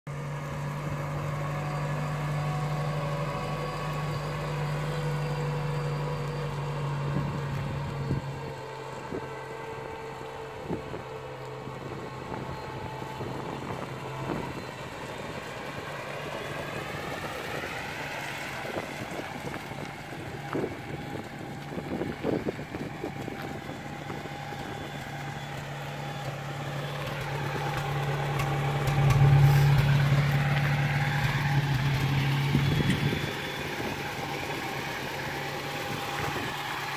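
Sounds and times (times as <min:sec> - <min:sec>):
truck engine running: 0:00.1 - 0:36.9.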